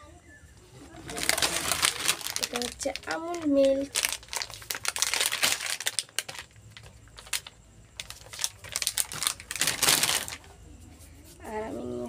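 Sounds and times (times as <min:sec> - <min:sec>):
plastic bag crinkling: 0:00.9 - 0:10.5.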